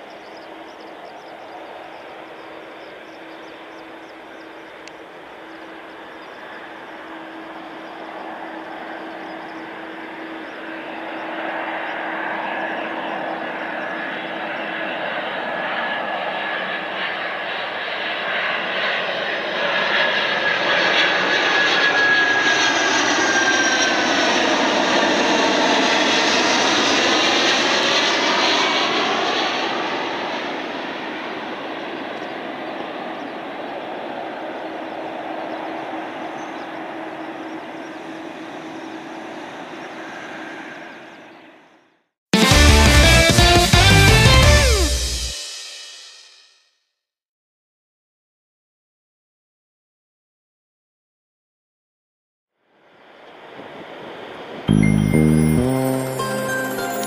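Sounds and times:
jet engine noise overhead: 0:00.0 - 0:41.6, 0:52.9 - 0:54.7.

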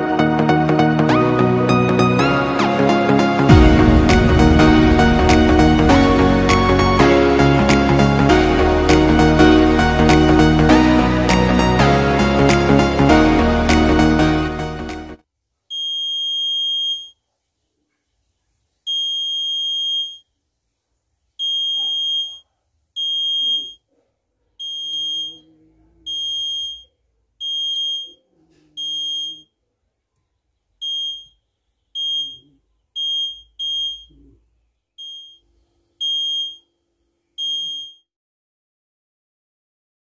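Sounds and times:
alarm buzzer beeping: 0:15.8 - 0:17.1, 0:18.9 - 0:20.2, 0:21.4 - 0:22.4, 0:23.0 - 0:23.8, 0:24.6 - 0:25.5, 0:26.1 - 0:28.2, 0:28.8 - 0:29.5, 0:30.8 - 0:31.4, 0:32.0 - 0:34.2, 0:35.0 - 0:35.4, 0:36.0 - 0:36.6, 0:37.4 - 0:38.0.

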